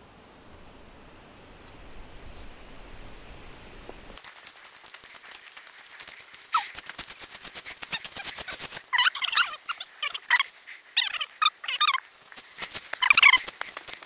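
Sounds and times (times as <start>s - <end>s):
sharp animal calls: 6.3s - 13.7s.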